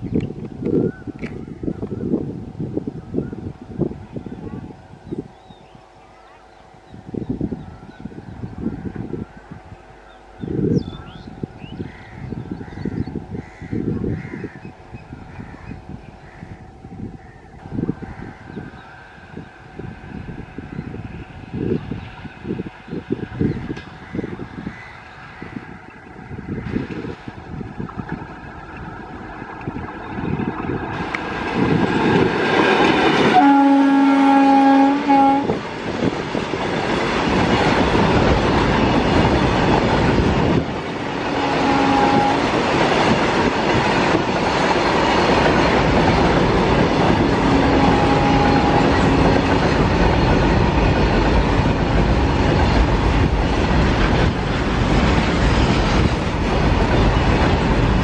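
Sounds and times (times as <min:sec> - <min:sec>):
train wagons rolling past: 0:08.8 - 0:58.0
locomotive horn blast: 0:33.2 - 0:35.6, 0:41.3 - 0:42.5, 0:47.4 - 0:49.5.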